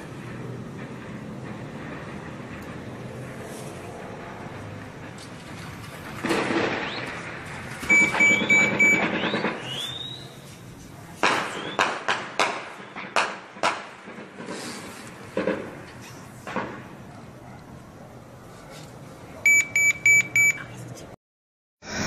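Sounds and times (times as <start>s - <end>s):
distant echoing gunshots: 6.0s - 10.2s, 11.2s - 14.6s
electronic beeping: 7.9s - 10.0s, 19.5s - 20.7s.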